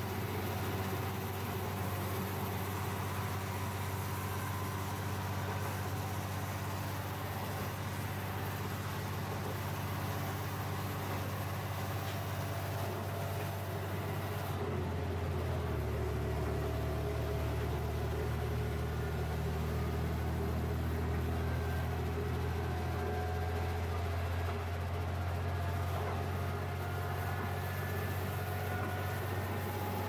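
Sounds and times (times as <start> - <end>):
train engine drone: 0.0 - 30.0.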